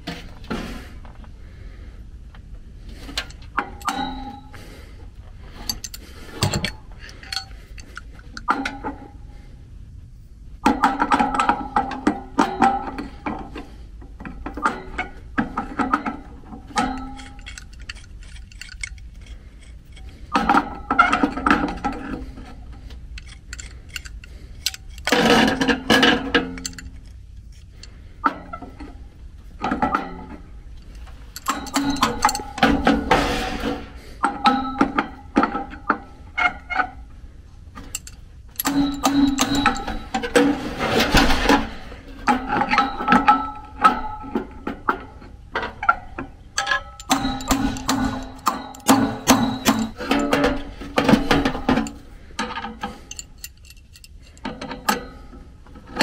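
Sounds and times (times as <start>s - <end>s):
sheet-metal blower ringing: 3.7s - 4.6s, 16.0s - 19.3s, 31.4s - 35.2s, 37.9s - 40.6s, 46.6s - 52.1s
hammer striking metal punch: 3.8s - 4.5s, 31.4s - 33.7s, 38.6s - 40.1s, 46.6s - 51.9s.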